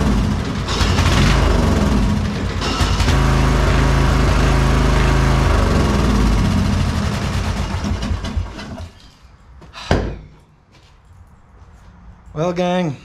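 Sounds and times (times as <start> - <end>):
riding mower engine running: 0.0 - 8.9.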